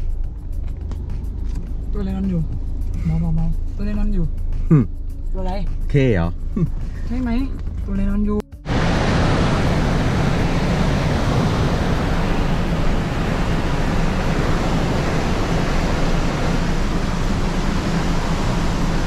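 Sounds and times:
waterfall rushing: 8.7 - 19.0.

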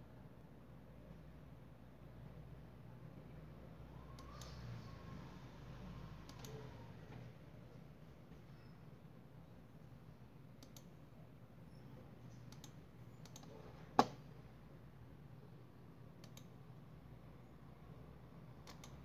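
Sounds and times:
low steady hum: 0.0 - 19.0
computer mouse clicking: 4.1 - 4.6, 6.2 - 6.8, 10.6 - 10.9, 12.3 - 14.2, 16.2 - 16.6, 18.6 - 19.0.

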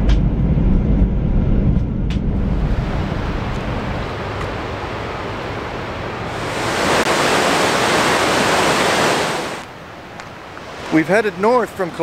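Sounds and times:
river and waterfall rushing: 2.7 - 12.0.

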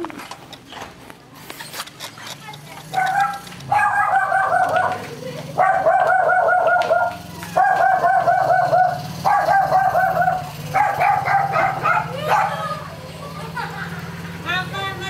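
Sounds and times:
dog barking rapidly: 2.9 - 5.0, 5.6 - 12.7.

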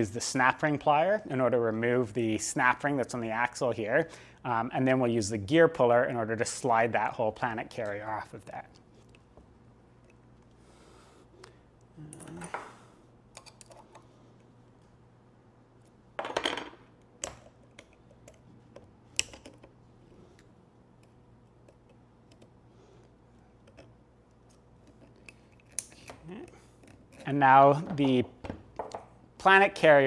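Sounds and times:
small metallic clicks and scrapes: 17.2 - 27.4.

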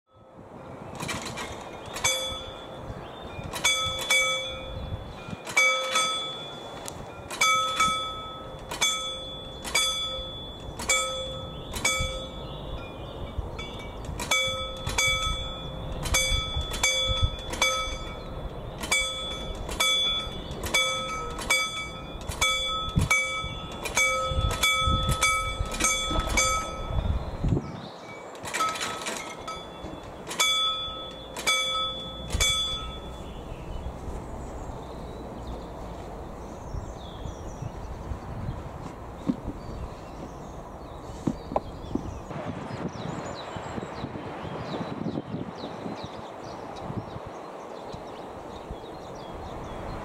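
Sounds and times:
railway crossing bell ringing: 0.1 - 0.6, 1.4 - 27.4, 28.0 - 33.9.

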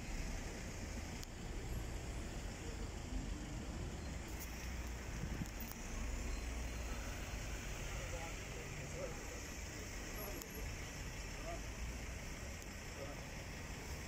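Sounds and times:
low rumble of town noise: 0.0 - 14.0
faint clicks: 1.2 - 1.4.

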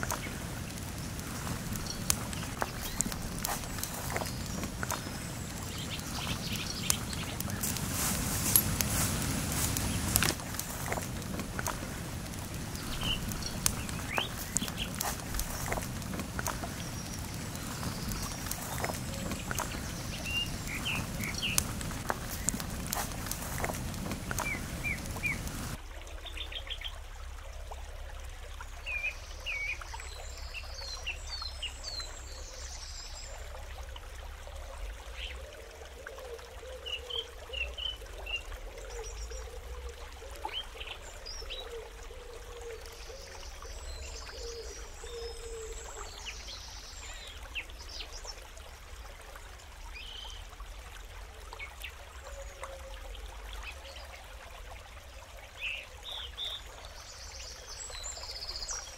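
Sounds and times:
small birds chirping: 0.0 - 25.8, 42.5 - 48.3, 55.6 - 58.9
steady trickling hiss: 0.0 - 58.9.

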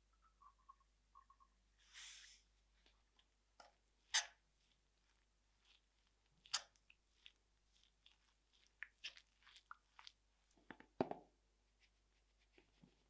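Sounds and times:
fork scraping and clicking in dough: 3.6 - 10.2.

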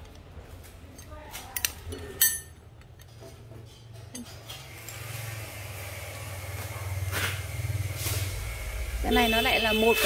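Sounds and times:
metal objects clinking: 1.0 - 3.1.

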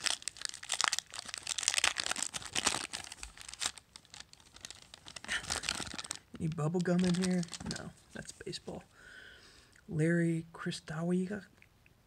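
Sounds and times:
foil wrapper crinkling: 0.0 - 7.9.

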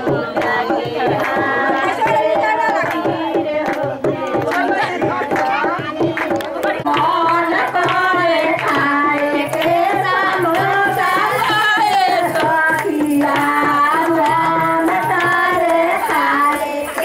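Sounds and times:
hand drum beat: 0.0 - 17.0.

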